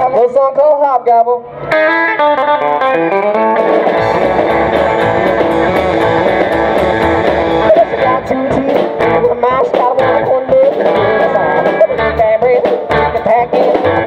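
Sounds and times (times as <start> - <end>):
electric guitar lead: 1.4 - 14.0
drum kit: 3.7 - 14.0
upright double bass: 4.0 - 10.4.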